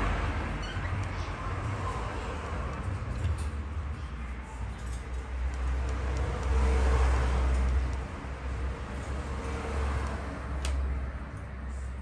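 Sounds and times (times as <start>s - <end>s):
passing vehicle rumble: 0.0s - 12.0s.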